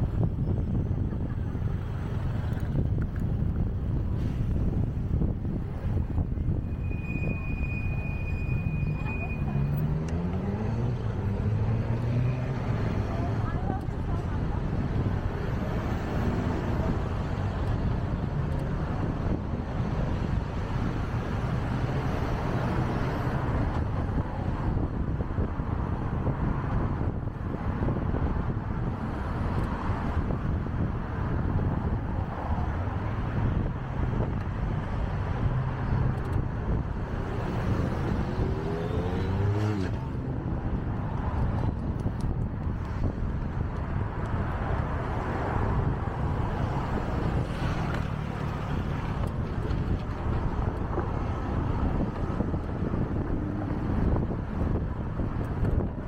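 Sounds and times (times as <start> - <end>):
traffic rumble: 0.0 - 56.0
vehicle engine revving: 9.5 - 13.5, 37.1 - 41.2.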